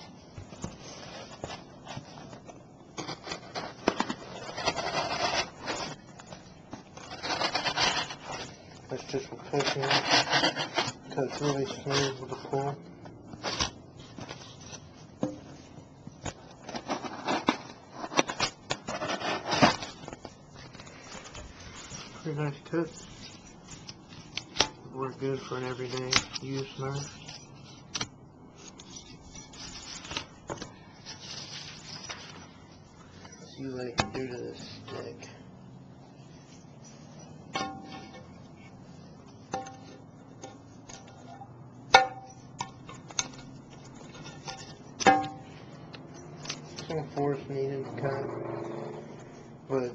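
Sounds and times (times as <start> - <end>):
knife scraping through cardboard: 3.0 - 6.0, 7.0 - 8.6, 9.5 - 12.2, 16.6 - 20.0.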